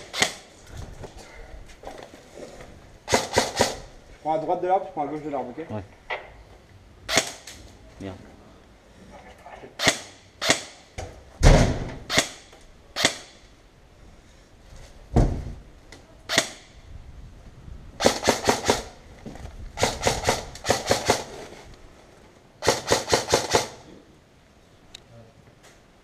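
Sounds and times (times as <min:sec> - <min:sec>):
airsoft rifle shots: 0:00.0 - 0:00.5, 0:03.1 - 0:03.9, 0:07.1 - 0:07.6, 0:09.8 - 0:13.4, 0:16.3 - 0:16.8, 0:18.0 - 0:19.0, 0:19.8 - 0:21.4, 0:22.6 - 0:23.8.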